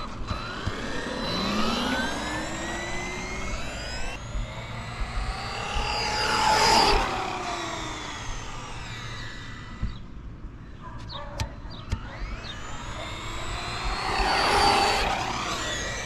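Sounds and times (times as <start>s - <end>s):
rc truck motor whine: 0.0s - 10.8s, 11.7s - 16.0s.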